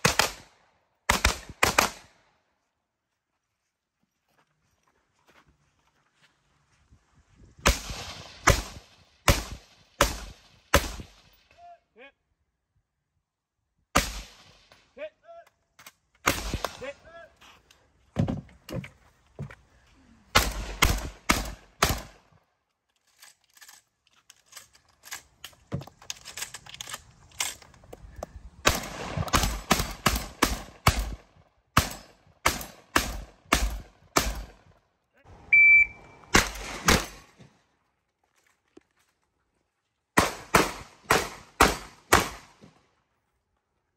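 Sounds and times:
rifle shots: 0.0s - 0.5s, 1.1s - 2.1s, 7.6s - 11.4s, 14.0s - 14.7s, 16.2s - 16.9s, 20.3s - 22.2s, 28.6s - 34.6s, 36.3s - 37.4s, 40.2s - 42.7s
shotgun shots: 0.0s - 0.5s, 1.1s - 2.1s, 7.6s - 11.4s, 14.0s - 14.7s, 16.2s - 16.9s, 20.3s - 22.2s, 28.6s - 34.6s, 36.3s - 37.4s, 40.2s - 42.7s
electronic timer beep: 35.5s - 36.2s.

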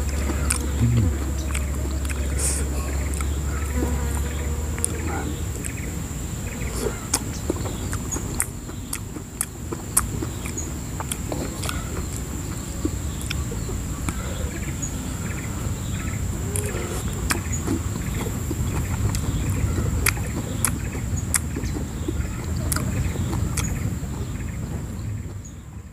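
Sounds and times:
chewing mouth sounds: 0.0s - 3.4s, 6.6s - 14.7s, 16.5s - 25.4s.

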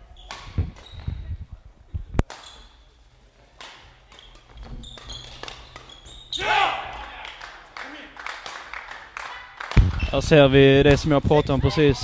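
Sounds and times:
racket hitting shuttlecock: 3.6s - 6.1s.

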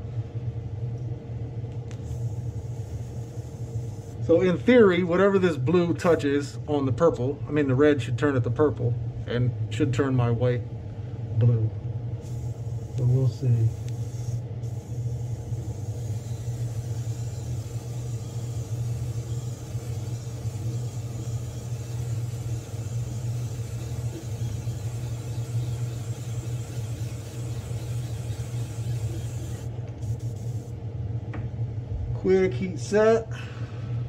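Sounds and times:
airbrush spraying hiss: 1.9s - 4.2s, 12.2s - 30.7s.

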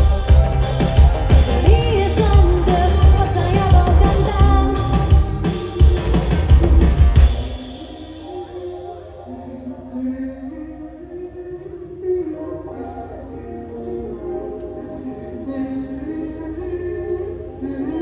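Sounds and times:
rock-pop band playing: 0.0s - 8.9s
woman singing: 1.5s - 6.3s, 7.4s - 18.0s.

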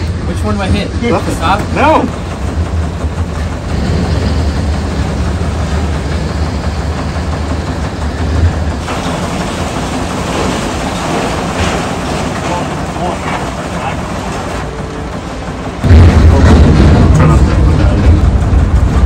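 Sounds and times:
car shredder rumbling: 0.0s - 19.0s
grinding noise: 0.4s - 19.0s.

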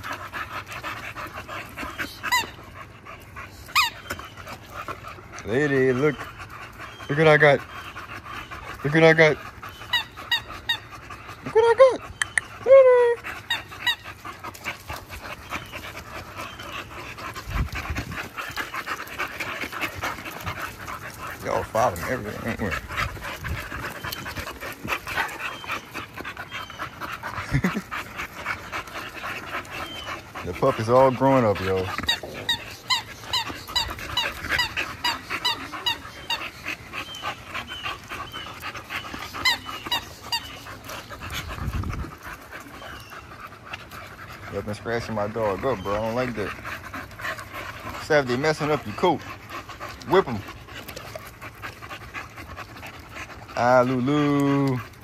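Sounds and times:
dog panting: 0.0s - 55.0s
dog squeaking: 1.8s - 2.6s, 3.7s - 4.6s, 5.5s - 11.2s, 29.2s - 42.1s.

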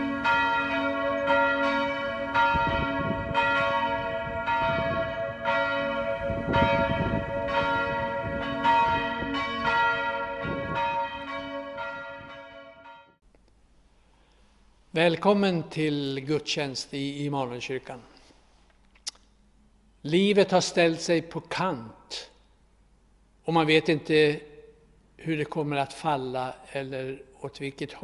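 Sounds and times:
church bells ringing: 0.0s - 13.2s.

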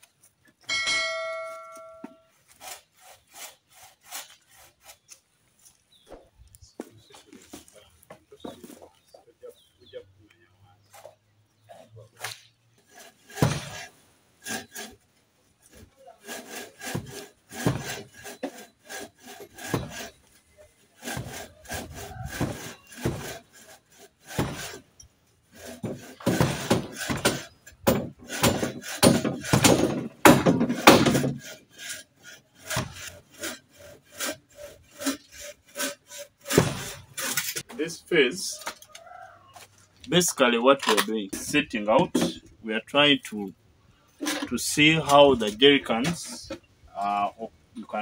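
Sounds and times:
bow saw cutting wood: 1.1s - 5.8s, 10.9s - 37.7s.

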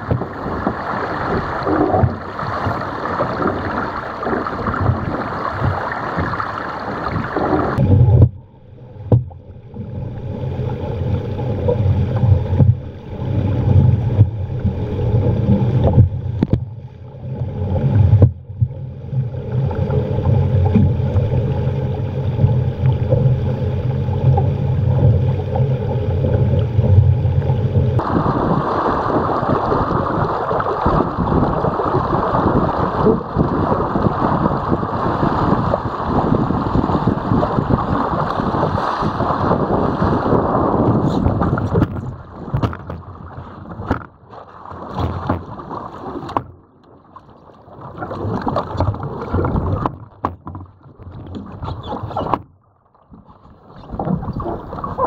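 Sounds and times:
water rushing along hull: 0.0s - 55.0s
wind buffeting microphone: 26.5s - 44.2s.

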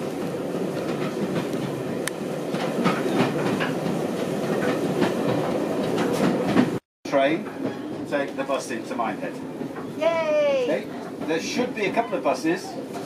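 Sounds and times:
train wheels rumbling on track: 0.0s - 13.0s
clacks over rail joints: 0.2s - 10.0s.

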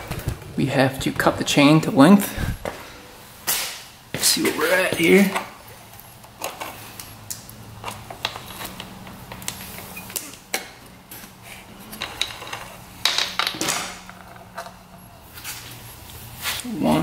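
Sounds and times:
steady low hum: 0.0s - 4.7s.

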